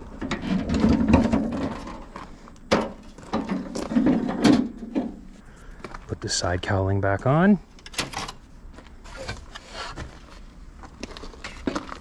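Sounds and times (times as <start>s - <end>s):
metal panels knocking and clunking: 0.2s - 2.1s, 2.7s - 5.3s.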